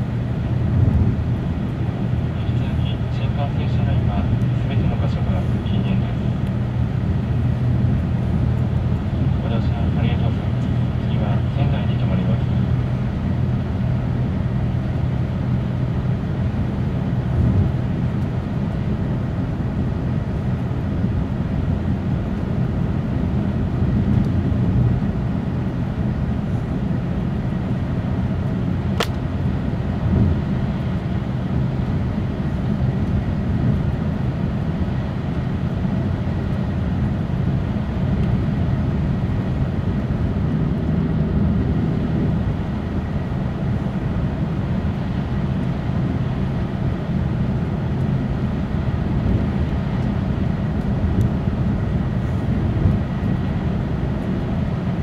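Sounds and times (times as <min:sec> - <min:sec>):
train rumbling on track: 0:00.0 - 0:55.0
sharp click: 0:29.0 - 0:29.2.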